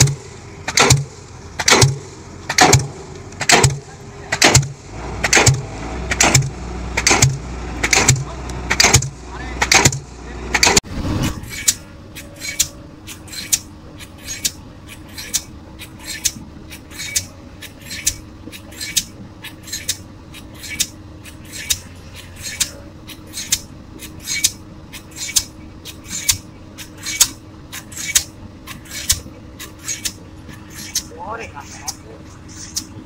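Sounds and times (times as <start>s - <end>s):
pile hammer metallic blows: 0.0s - 14.6s
engine hum: 0.0s - 33.0s.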